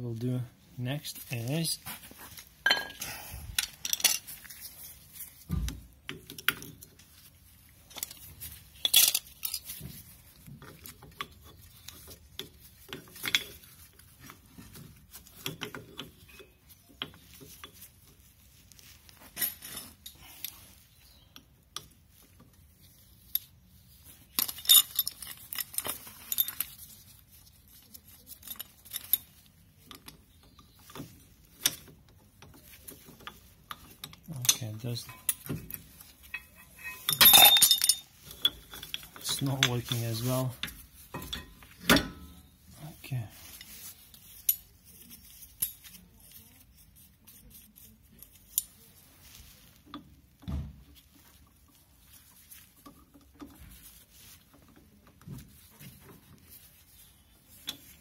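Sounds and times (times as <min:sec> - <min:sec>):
metallic clinks and taps: 0:02.3 - 0:05.3, 0:27.7 - 0:42.4.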